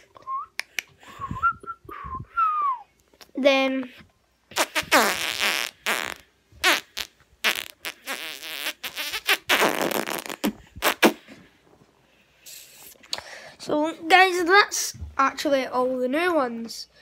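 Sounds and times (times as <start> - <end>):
boy making buzzy mouth noises: 4.5 - 11.3.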